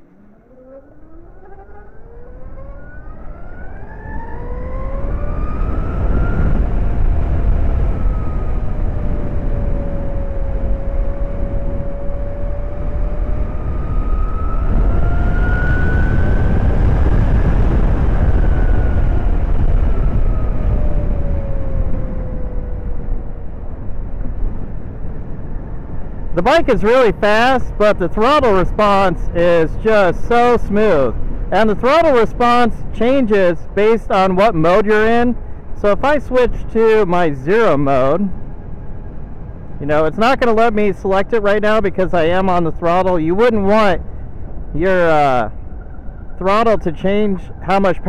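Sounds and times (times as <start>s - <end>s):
electric motorcycle drivetrain whine: 0.0s - 48.0s
wind and road noise: 0.0s - 48.0s.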